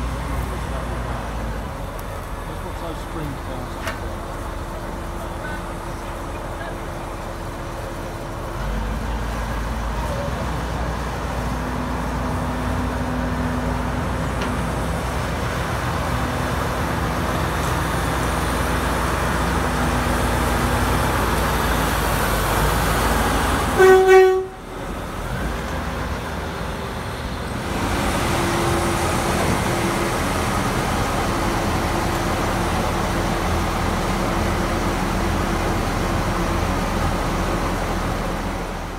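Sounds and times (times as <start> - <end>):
diesel locomotive engine running: 0.0 - 38.9
locomotive horn toot: 23.8 - 24.7.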